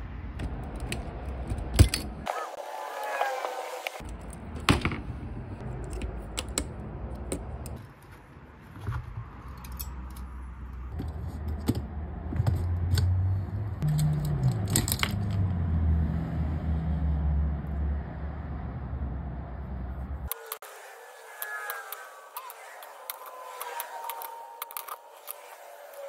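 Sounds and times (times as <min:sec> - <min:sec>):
metallic clicks of typewriter parts: 0:13.8 - 0:15.4
low hum shifting pitch: 0:15.2 - 0:26.0.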